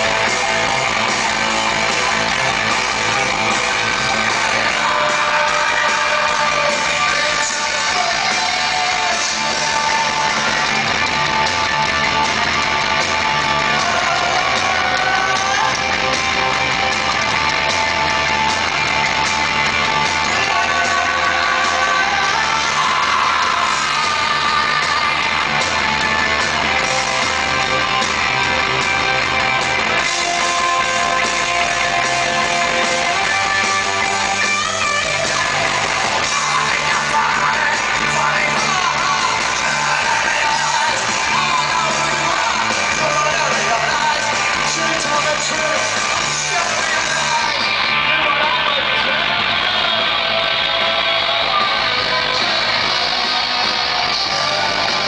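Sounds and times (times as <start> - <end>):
punk rock band playing live: 0.0 - 55.0
shouted lead vocal: 0.0 - 55.0.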